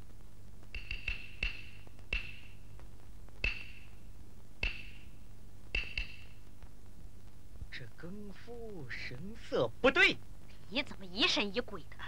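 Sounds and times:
wooden clapper strikes: 0:00.7 - 0:02.6, 0:03.4 - 0:04.0, 0:04.6 - 0:06.4.

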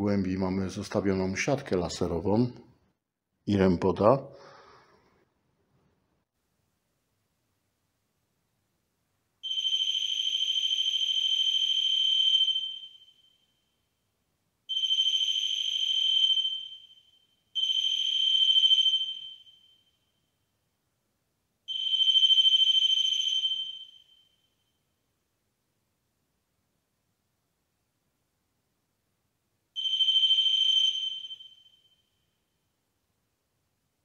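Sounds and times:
high-pitched alarm tone: 0:29.8 - 0:32.0.

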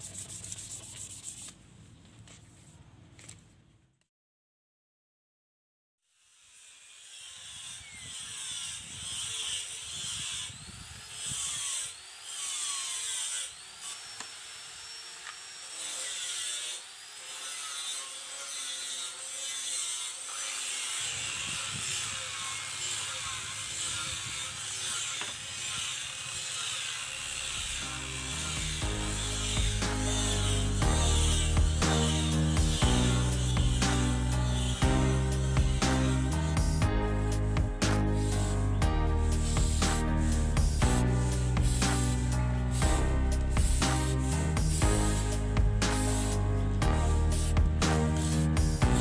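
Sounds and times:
hand tool rasping workpiece: 0:15.2 - 0:36.8
music: 0:27.8 - 0:49.0.

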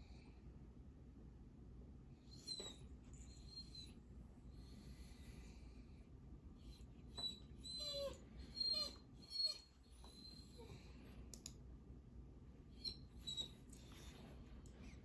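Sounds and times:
dog whining: 0:02.2 - 0:04.1, 0:06.6 - 0:11.0, 0:12.7 - 0:14.3.

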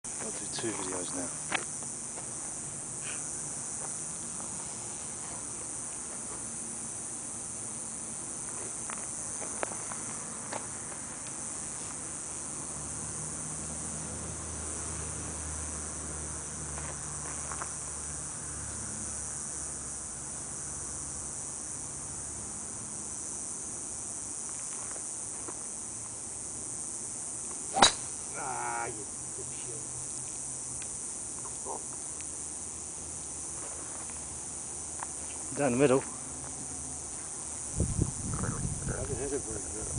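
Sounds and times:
high-pitched insect drone: 0:00.1 - 0:39.9
golf club striking ball: 0:27.7 - 0:28.2.

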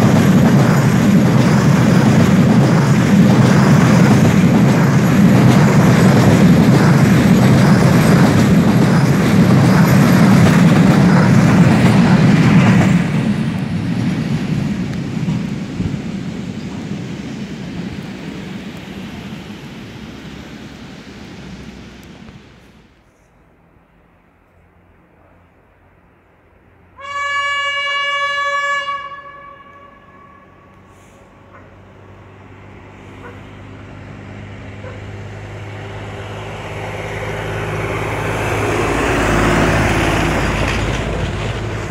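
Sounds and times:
freight train rumble: 0:00.0 - 0:41.9
vehicle engine hum: 0:18.0 - 0:26.9, 0:30.6 - 0:41.9
railway vehicle horn blast: 0:27.0 - 0:31.2.

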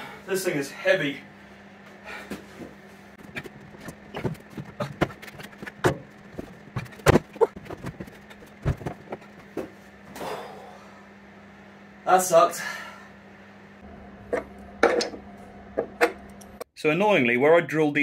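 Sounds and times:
faint steady hum: 0:00.0 - 0:17.6
heavy metal knocks and clunks: 0:03.2 - 0:09.3.

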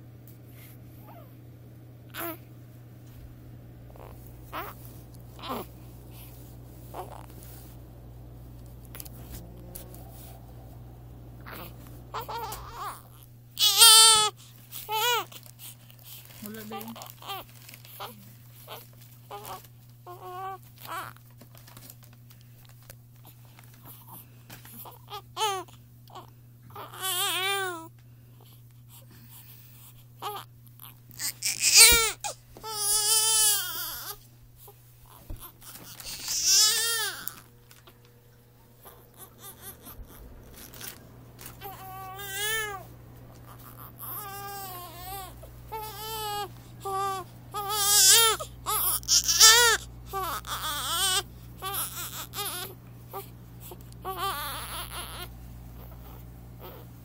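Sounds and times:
newborn baby crying: 0:02.1 - 0:02.4, 0:03.9 - 0:06.3, 0:06.9 - 0:07.4, 0:11.4 - 0:15.4, 0:16.1 - 0:21.2, 0:24.7 - 0:27.9, 0:30.2 - 0:38.0, 0:38.8 - 0:56.9.

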